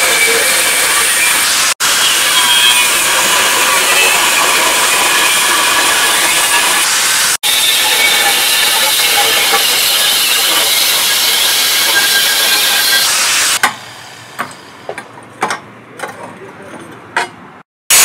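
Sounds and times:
angle grinder cutting steel: 0.0s - 13.6s.

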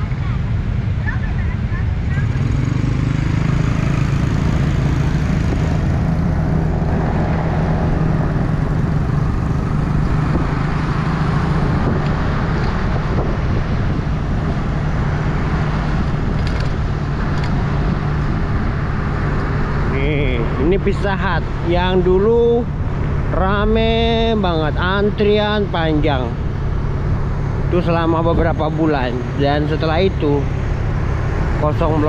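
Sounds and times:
wind on microphone: 3.2s - 20.6s.

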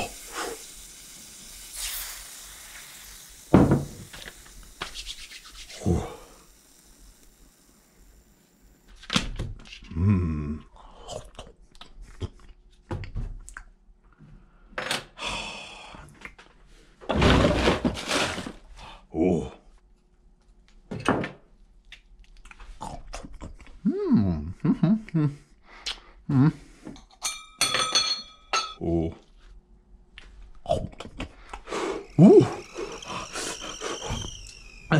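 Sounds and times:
water pouring into a cup: 0.0s - 8.3s
carafe knocked on wooden table: 3.6s - 3.9s.

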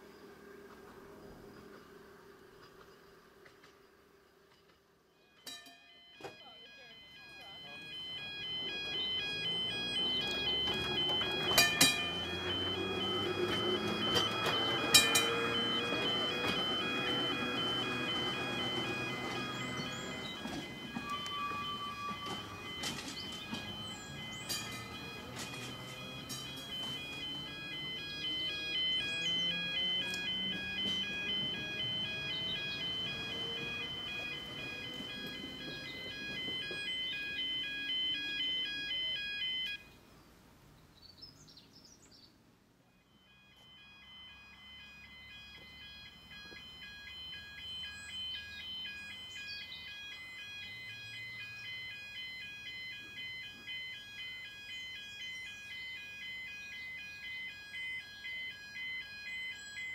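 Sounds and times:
two-tone crossing warning alarm: 5.0s - 40.1s, 42.8s - 59.9s
electric tram motor whine: 6.1s - 39.8s, 43.0s - 59.9s
birdsong: 6.4s - 42.4s, 46.3s - 59.9s.

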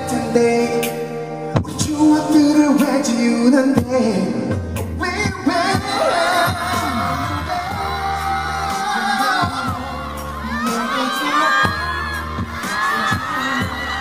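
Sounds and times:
man singing into microphone: 0.0s - 14.0s
pop backing track with drums: 0.0s - 14.0s.

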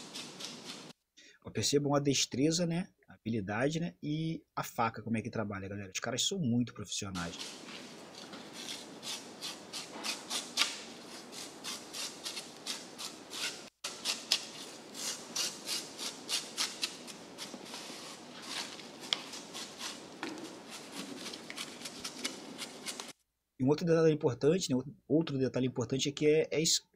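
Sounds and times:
blade scraping fish scales: 7.2s - 23.2s.

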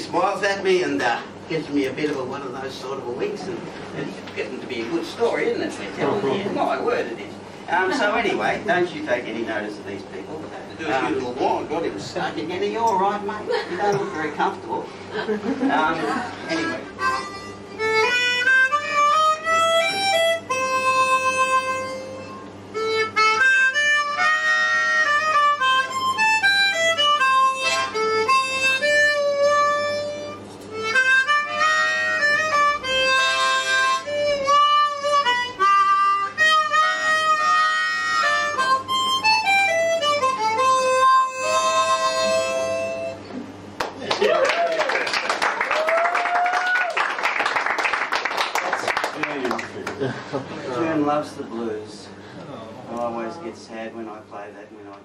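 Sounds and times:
harmonica playing blues: 16.3s - 43.6s.

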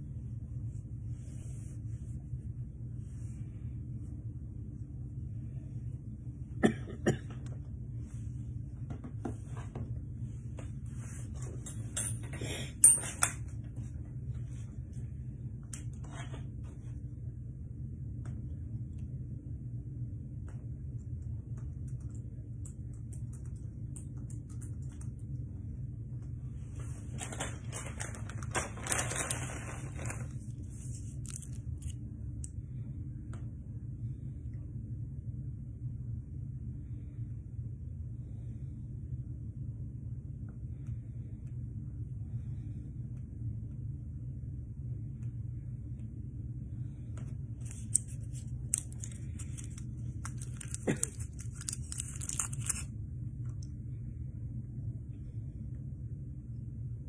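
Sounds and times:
room hum: 0.0s - 57.0s
rustling and scraping: 8.0s - 12.3s, 26.6s - 32.0s
crackling and rustling: 26.8s - 32.0s, 47.6s - 52.9s.

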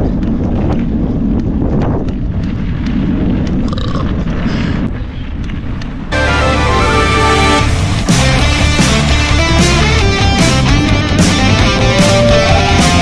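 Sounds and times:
bike rattling: 0.0s - 6.1s
wind on microphone: 0.0s - 6.2s.

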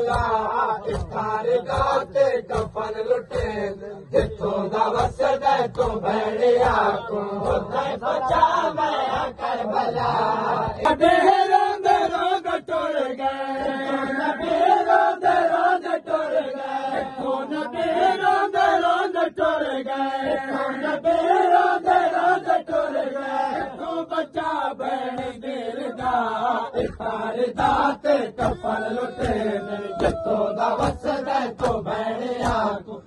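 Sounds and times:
chest-beating slaps: 0.0s - 9.4s, 26.8s - 32.8s
men chanting a lament: 0.0s - 33.0s.

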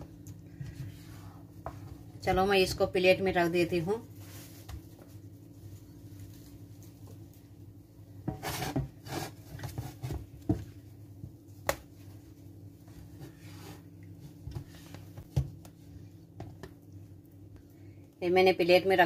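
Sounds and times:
low steady hum: 0.0s - 19.0s
spatula scraping dough in pan: 8.3s - 10.2s.

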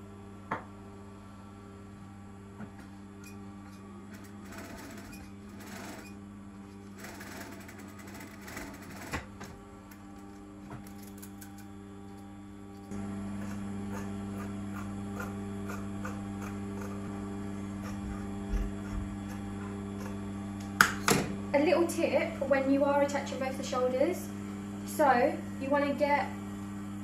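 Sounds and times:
sewing machine motor humming: 2.7s - 21.0s.

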